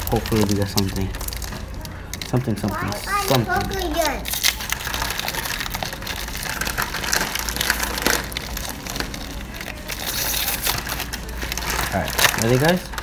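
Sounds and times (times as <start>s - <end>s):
foil card pack crinkling: 0.0s - 13.0s.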